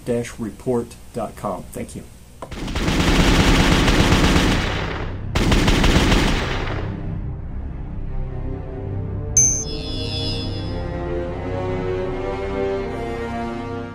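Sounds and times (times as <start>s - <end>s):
rapid automatic gunfire: 2.5s - 6.9s.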